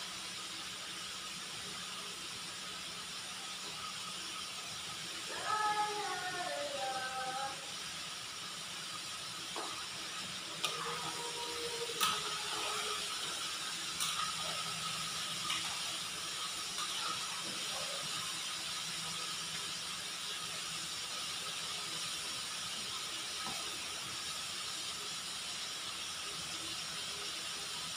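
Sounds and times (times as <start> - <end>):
chicken sizzling in hot oil: 0.0 - 27.9.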